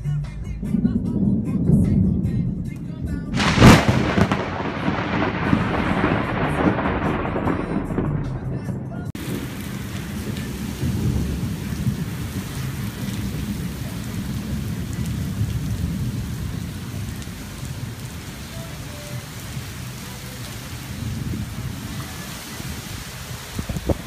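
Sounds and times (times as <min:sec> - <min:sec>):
low rumble: 0:00.0 - 0:18.3
heavy rain on pavement: 0:02.8 - 0:08.2, 0:09.1 - 0:24.0.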